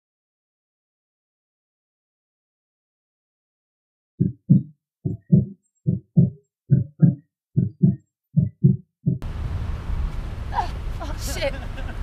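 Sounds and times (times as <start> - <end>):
heartbeat thumps: 4.2 - 9.2
outdoor background noise with low rumble: 9.2 - 12.0.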